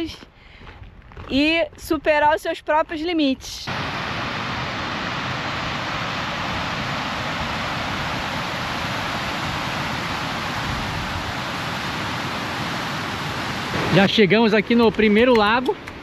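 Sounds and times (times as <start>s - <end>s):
stream rushing over rocks: 3.7s - 14.9s.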